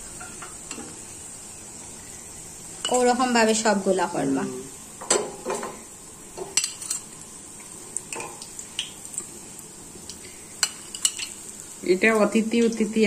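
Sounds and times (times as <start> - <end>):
food frying in oil: 0.0 - 13.0
metal utensil clinking on pan: 6.4 - 7.1, 8.1 - 8.4, 10.6 - 11.4.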